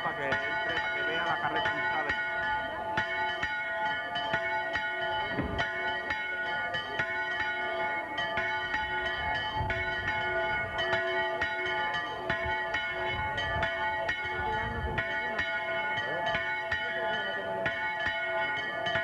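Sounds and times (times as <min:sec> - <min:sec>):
bells pealing: 0:00.0 - 0:19.0
faint crowd voices: 0:00.0 - 0:19.0.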